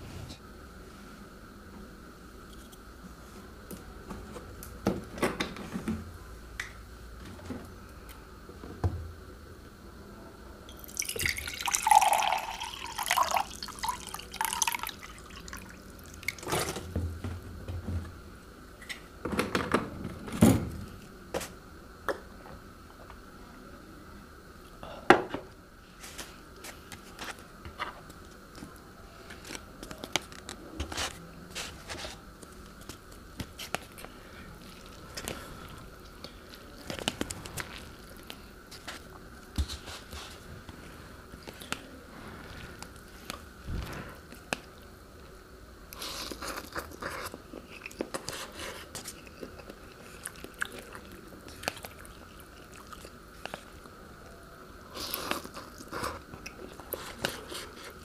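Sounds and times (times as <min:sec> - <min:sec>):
chewing and mouth clicks: 0:46.0 - 0:53.7.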